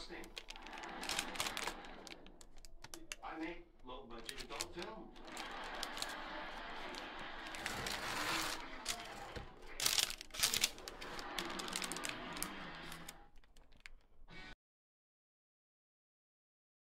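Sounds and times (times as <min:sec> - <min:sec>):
parchment paper crinkling: 0:00.0 - 0:14.3
spatula scraping pan: 0:06.9 - 0:09.5.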